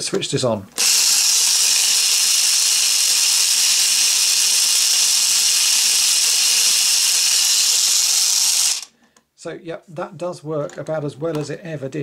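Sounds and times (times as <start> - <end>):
toy electric motor whirring: 0.8 - 8.9.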